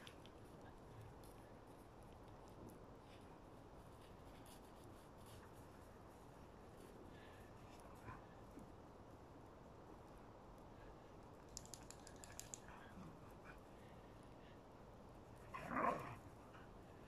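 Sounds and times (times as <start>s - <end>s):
faint ticks: 10.0s - 13.6s.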